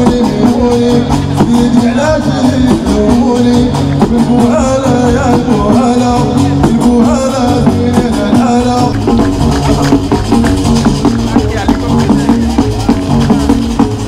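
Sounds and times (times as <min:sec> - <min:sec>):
person singing: 0:00.0 - 0:10.2
live band with beat and bass: 0:00.0 - 0:14.0.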